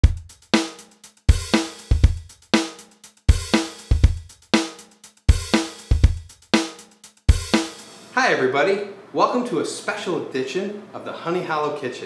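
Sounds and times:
drum kit beat: 0.0 - 8.1.

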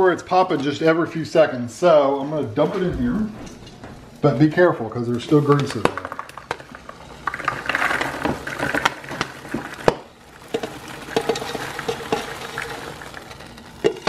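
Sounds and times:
popcorn pouring into plastic bowl: 5.2 - 14.0.

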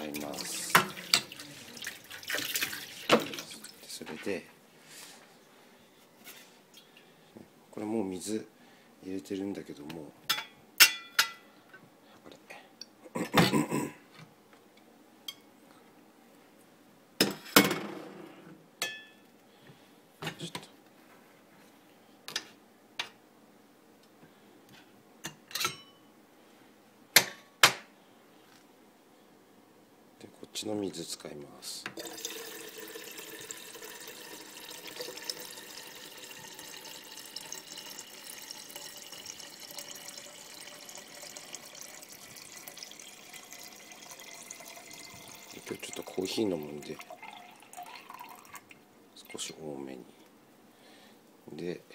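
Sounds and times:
tap water filling metal pitcher: 0.0 - 3.8, 32.0 - 48.8
dish clanking in metal sink: 0.1 - 1.4.

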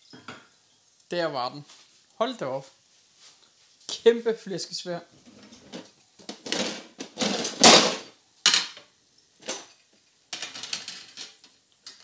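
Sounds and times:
utensils clattering against pot: 5.4 - 8.8.

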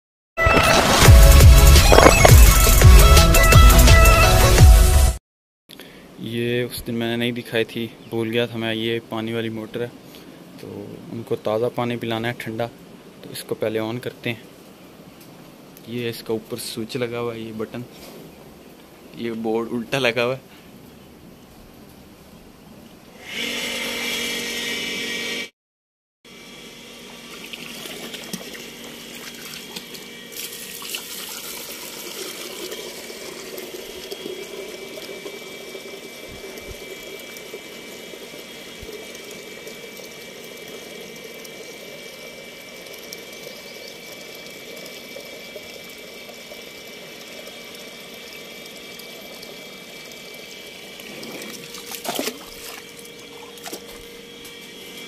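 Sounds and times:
electric water pump humming: 0.4 - 5.2, 23.1 - 25.5, 26.3 - 55.0
water gushing into steel bucket: 0.5 - 3.1, 27.2 - 54.0.

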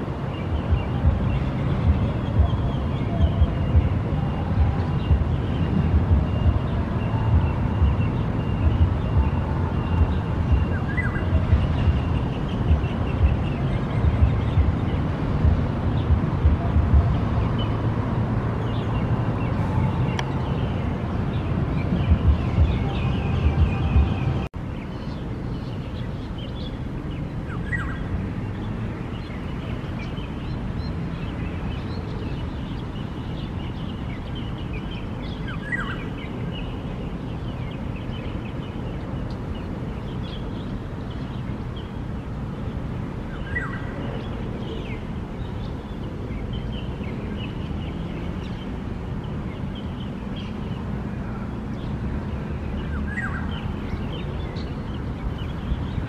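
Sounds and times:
low background rumble: 0.0 - 24.8.

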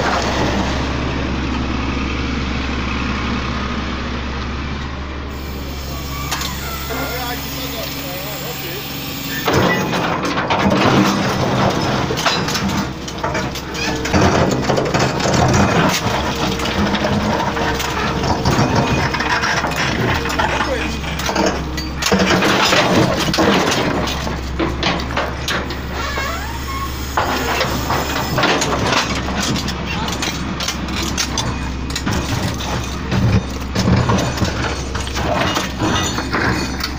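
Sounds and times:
excavator engine humming: 0.0 - 36.9
rocks knocking and clinking: 27.8 - 36.9.

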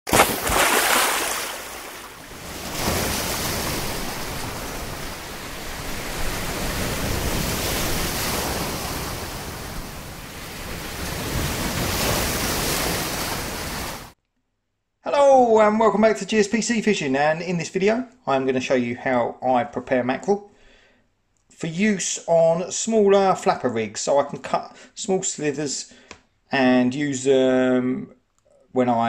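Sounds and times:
sea waves breaking: 0.1 - 14.2.

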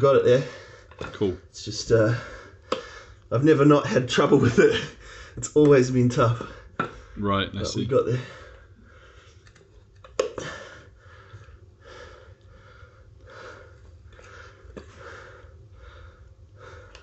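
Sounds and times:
person breathing hard: 2.1 - 3.3, 4.9 - 5.4, 8.1 - 9.5, 10.2 - 17.0.

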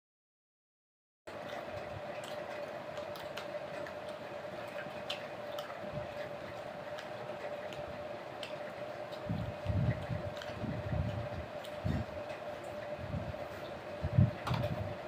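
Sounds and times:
steady hum with hiss: 1.3 - 15.0
chewing: 1.5 - 12.8.

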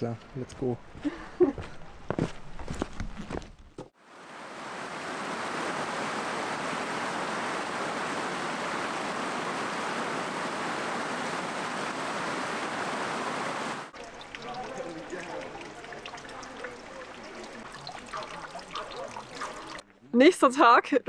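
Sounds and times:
water rushing: 4.0 - 19.8.

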